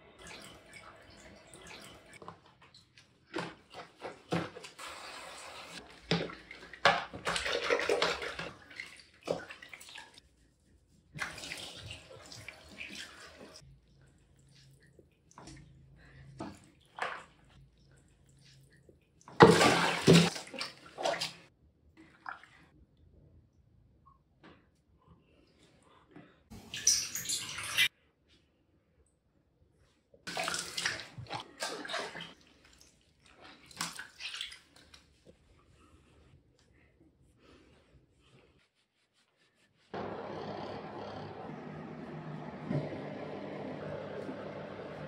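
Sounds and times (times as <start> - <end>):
water splashing: 3.4 - 10.2, 19.3 - 21.5, 30.3 - 35.1.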